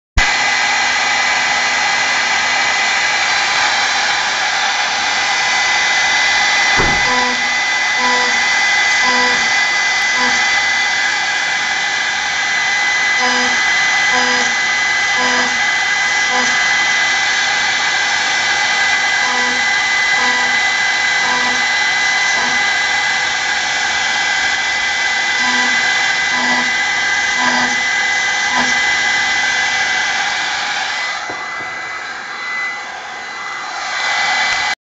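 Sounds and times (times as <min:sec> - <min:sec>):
mill spindle whining: 0:00.4 - 0:34.8
servo motors humming: 0:06.8 - 0:10.5, 0:13.1 - 0:16.7, 0:19.1 - 0:22.8, 0:25.4 - 0:29.5.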